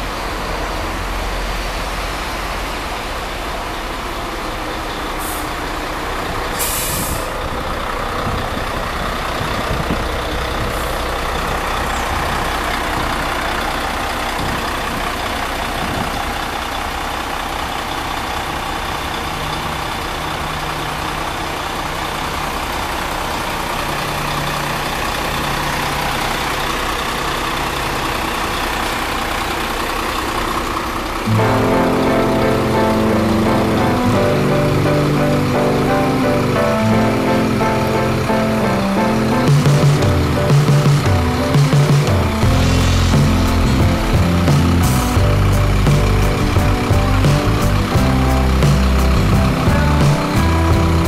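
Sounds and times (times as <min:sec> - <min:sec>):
diesel bus engine idling: 0:00.0 - 0:51.0
short hiss of air: 0:06.6 - 0:07.4.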